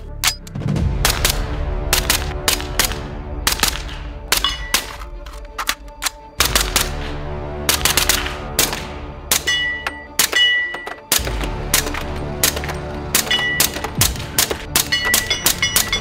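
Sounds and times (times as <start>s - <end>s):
background music: 0.0s - 16.0s
suppressed rifle shots: 6.4s - 9.5s.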